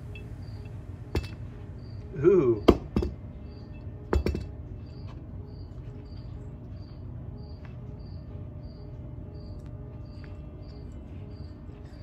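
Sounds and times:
cricket chirping: 0.0s - 12.0s
metallic clank: 1.1s - 1.4s.

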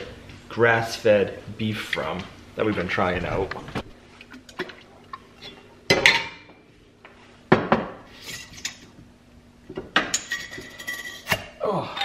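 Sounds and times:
kitchenware clattering: 5.4s - 6.5s, 9.7s - 11.6s.

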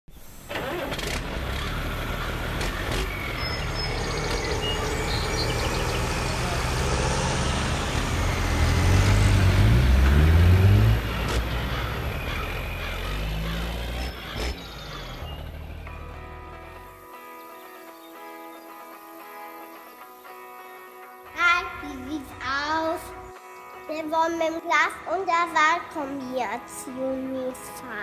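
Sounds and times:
diesel tractor engine running: 0.2s - 17.0s.

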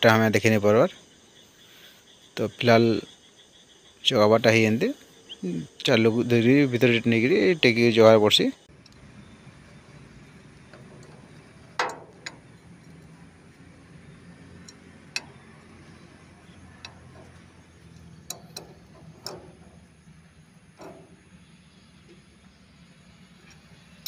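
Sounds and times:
spanner clinking on a nut: 8.8s - 20.0s.

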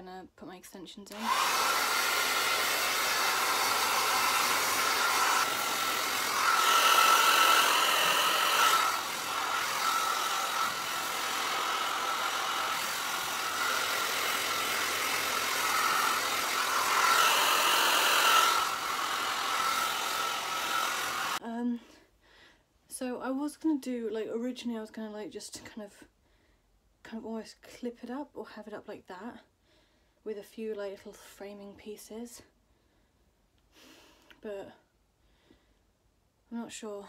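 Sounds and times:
hair dryer running: 1.1s - 21.4s.

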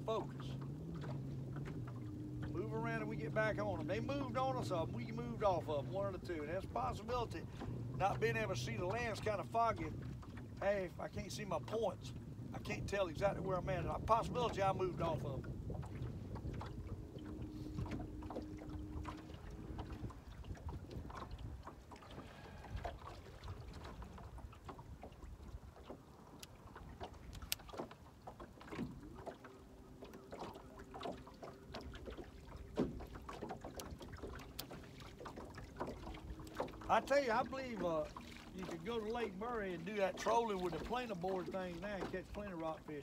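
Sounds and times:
light wind: 0.0s - 43.0s
waves lapping against boat hull: 0.0s - 43.0s
small clicks and knocks: 25.8s - 28.0s.

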